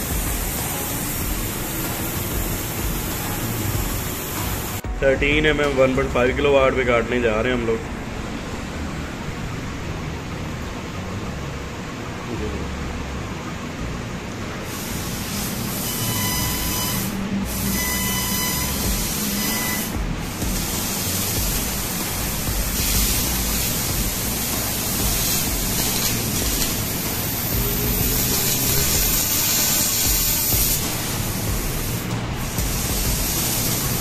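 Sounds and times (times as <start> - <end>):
laser cutter gas hiss: 0.0 - 4.9, 14.6 - 34.0
low machine hum: 0.0 - 34.0.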